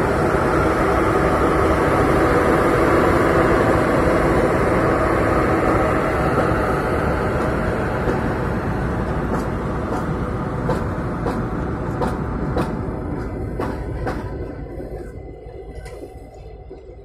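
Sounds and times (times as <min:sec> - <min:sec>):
train wheels rumbling on rail: 0:00.0 - 0:17.0
rail joint clacks: 0:06.2 - 0:17.0.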